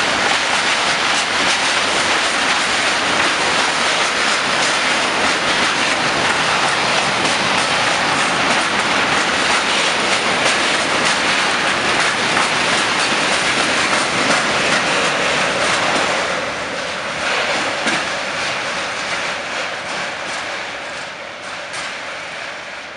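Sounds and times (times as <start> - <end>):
train wheels clattering over rail joints: 0.0 - 22.6.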